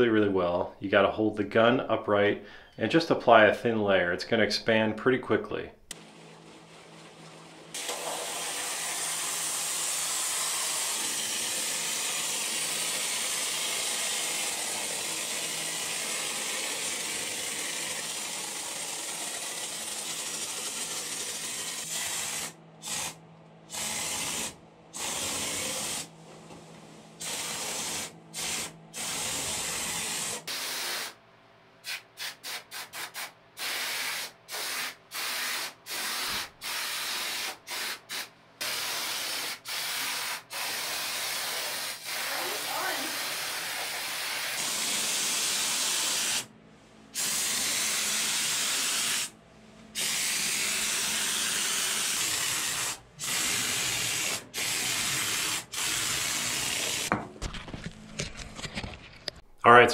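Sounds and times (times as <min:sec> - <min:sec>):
spray foam can hissing: 0:07.8 - 0:26.1, 0:27.2 - 0:31.2, 0:31.8 - 0:46.5, 0:47.2 - 0:49.3, 0:50.0 - 0:57.1.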